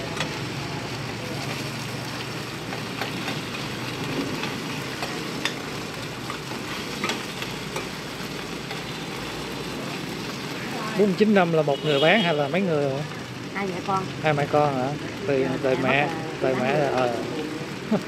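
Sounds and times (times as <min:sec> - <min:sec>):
food sizzling on a flat pan: 0:00.0 - 0:18.0.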